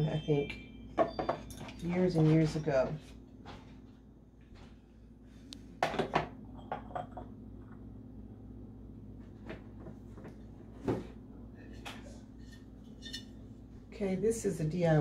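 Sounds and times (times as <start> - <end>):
bowls and jar knocking on wooden tray: 1.0 - 1.5, 5.8 - 7.3.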